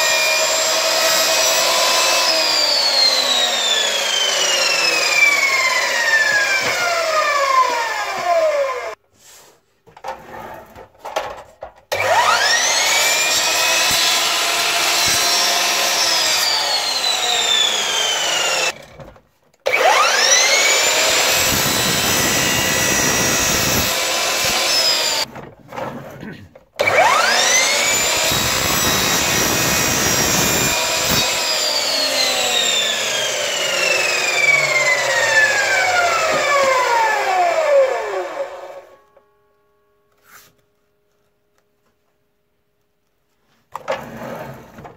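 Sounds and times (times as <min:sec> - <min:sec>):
mitre saw motor whine: 0:12.0 - 0:18.8, 0:19.7 - 0:25.3, 0:26.8 - 0:39.0
saw blade rasping through board: 0:12.0 - 0:18.8, 0:19.9 - 0:25.3, 0:26.8 - 0:37.4.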